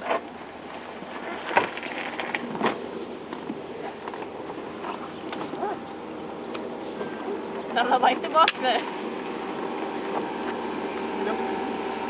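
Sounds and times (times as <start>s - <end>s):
rustles: 0.0s - 7.8s
steady outdoor hiss: 0.0s - 12.0s.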